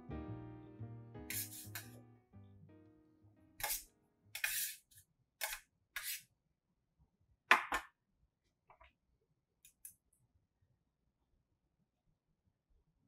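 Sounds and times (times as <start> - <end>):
metal spoon scraping a tray: 1.3 - 2.0, 3.6 - 6.2.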